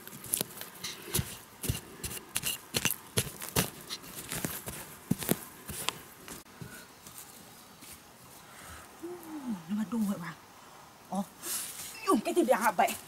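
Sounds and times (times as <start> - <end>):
metal blade digging soil: 0.0 - 6.0.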